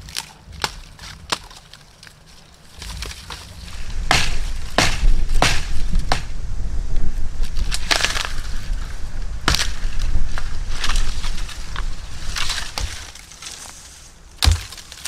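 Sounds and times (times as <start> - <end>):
dry branches snapping: 0.0 - 15.0
low rumble: 3.5 - 13.2.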